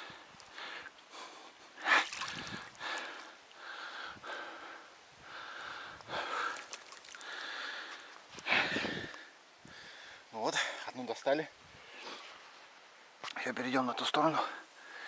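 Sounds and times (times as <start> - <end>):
man breathing heavily: 0.0 - 10.8, 14.4 - 15.0.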